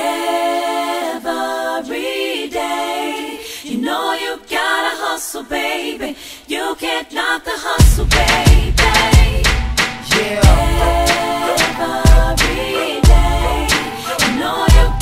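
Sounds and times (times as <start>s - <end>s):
a cappella singing voices: 0.0s - 15.0s.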